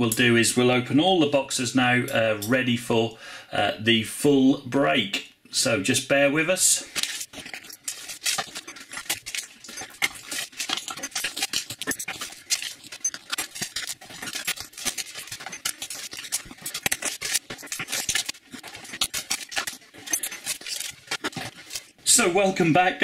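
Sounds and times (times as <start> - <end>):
plastic wrap crinkling: 6.6 - 22.3.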